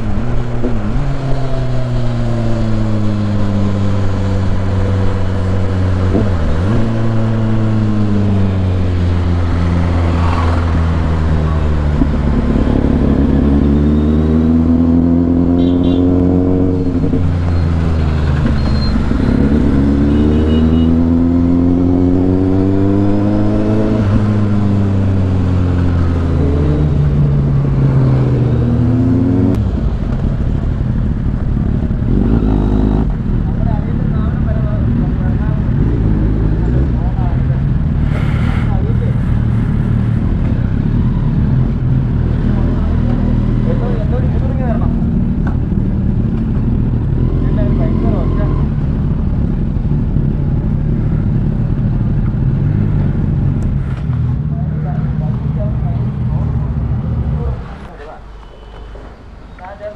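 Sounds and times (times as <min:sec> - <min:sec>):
tyres on wet road: 0:00.0 - 0:15.4, 0:16.0 - 0:59.9
motorcycle engine revving: 0:00.0 - 0:58.7.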